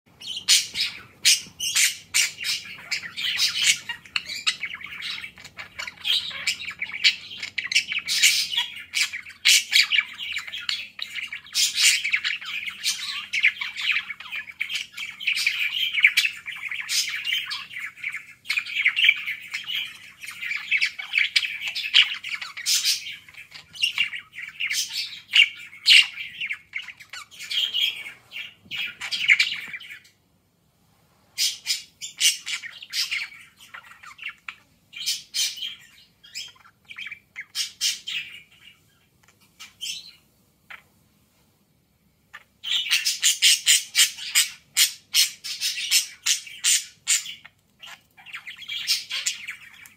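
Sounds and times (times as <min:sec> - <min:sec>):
budgerigar chattering and warbling: 0:00.2 - 0:30.0, 0:42.4 - 0:49.9.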